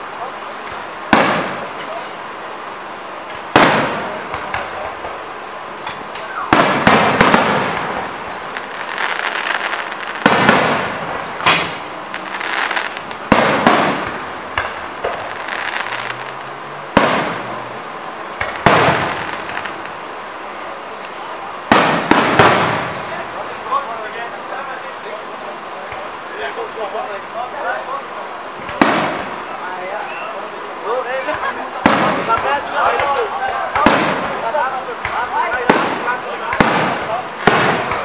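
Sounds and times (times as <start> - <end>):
firework shells bursting: 0.6 - 2.0, 3.2 - 17.6, 18.4 - 20.0, 21.0 - 23.3, 28.6 - 30.2, 31.3 - 38.0.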